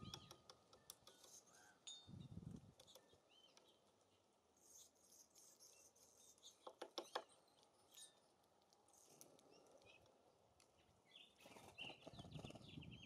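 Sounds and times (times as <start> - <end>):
faint songbird chirps: 0.0 - 13.0
wind rumble on microphone: 2.1 - 2.8, 12.1 - 13.0.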